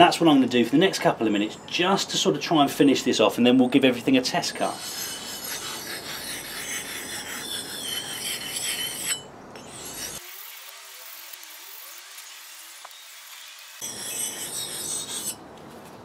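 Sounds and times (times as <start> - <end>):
axe scraping on a whetstone: 4.5 - 10.2, 13.8 - 15.4.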